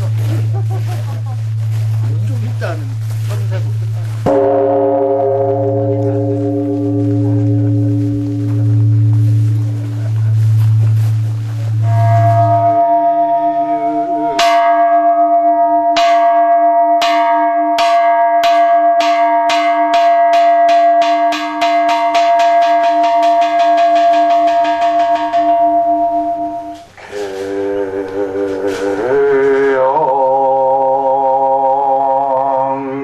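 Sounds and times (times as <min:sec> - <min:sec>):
temple bell struck with mallet: 0:00.0 - 0:26.9
person chanting: 0:03.6 - 0:16.5, 0:20.6 - 0:33.0.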